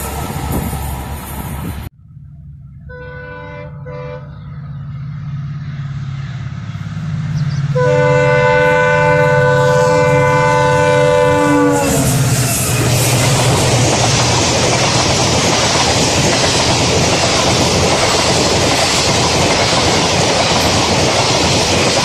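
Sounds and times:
diesel locomotive engine rumble: 0.0 - 22.0
locomotive horn blasts: 2.8 - 4.4, 7.7 - 13.4.

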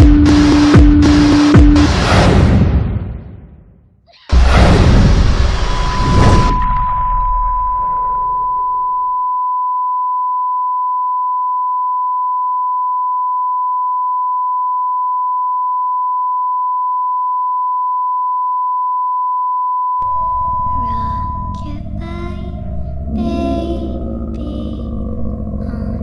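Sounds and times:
low rumble: 4.3 - 8.9, 20.0 - 26.0
steady electronic beep tone: 5.5 - 26.0.

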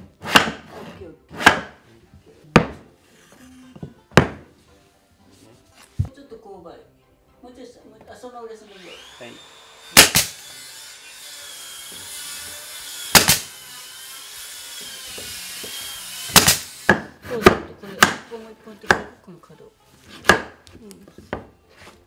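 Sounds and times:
hammer knocking on floorboards: 2.5 - 2.9, 3.8 - 4.5, 20.2 - 21.6.

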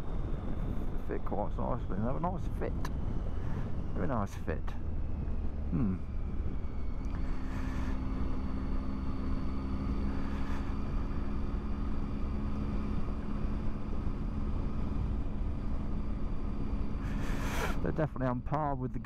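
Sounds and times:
motorcycle engine cruising: 0.0 - 19.0
road rumble: 0.0 - 19.0
wind: 0.0 - 19.0.

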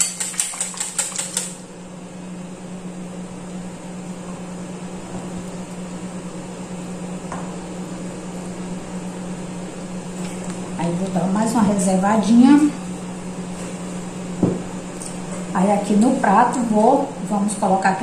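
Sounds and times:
utensil clicking against bowl: 0.0 - 1.6
low mechanical hum: 0.0 - 18.0.

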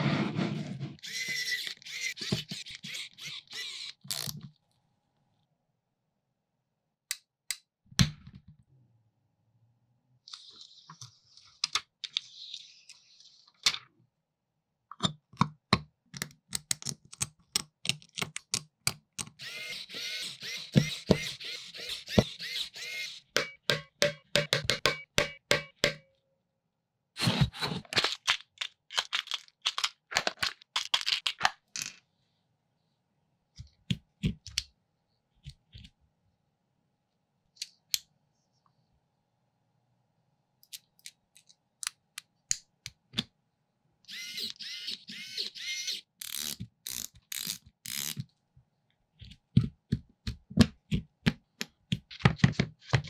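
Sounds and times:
screwdriver turning screws: 1.0 - 4.4, 19.2 - 23.5, 44.1 - 48.2.

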